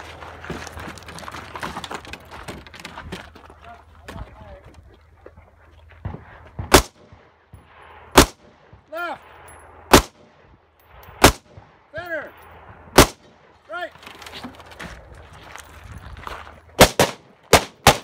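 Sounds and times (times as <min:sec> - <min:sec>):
rifle shots: 0:06.6 - 0:08.9, 0:09.8 - 0:10.4, 0:11.1 - 0:11.8, 0:12.6 - 0:13.5, 0:16.8 - 0:18.0.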